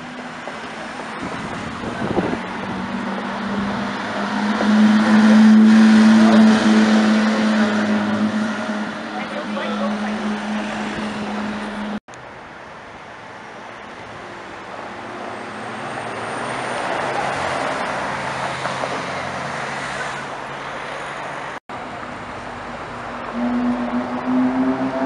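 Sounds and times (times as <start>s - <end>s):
sports car engine droning: 22.4s - 25.0s.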